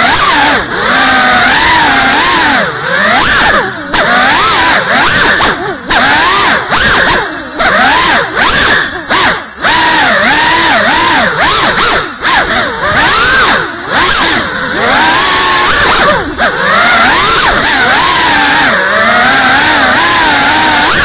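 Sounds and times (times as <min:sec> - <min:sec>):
drone motors whining: 0:00.0 - 0:21.0.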